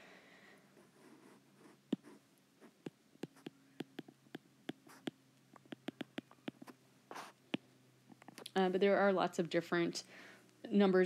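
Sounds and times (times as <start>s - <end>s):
stylus tapping on a screen: 2.8s - 7.6s.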